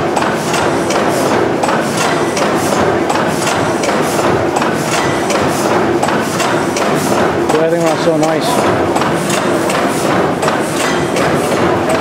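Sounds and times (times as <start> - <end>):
mechanical hum: 0.0 - 12.0
gas engine valve gear clacking: 0.2 - 12.0.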